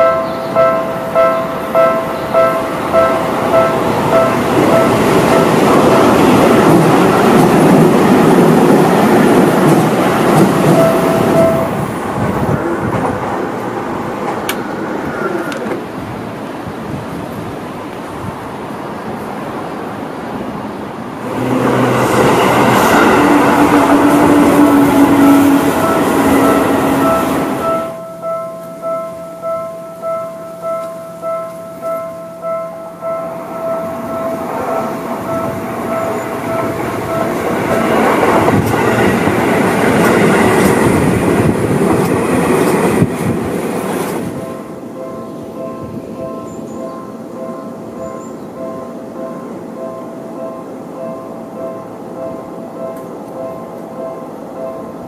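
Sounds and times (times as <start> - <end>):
level crossing bell ringing: 0.0 - 7.4, 10.6 - 11.8, 22.4 - 38.1, 44.4 - 55.0
electric train rumbling: 0.0 - 55.0
outdoor noise: 0.0 - 55.0
wheels clacking over rail joints: 1.2 - 16.0, 33.9 - 44.6.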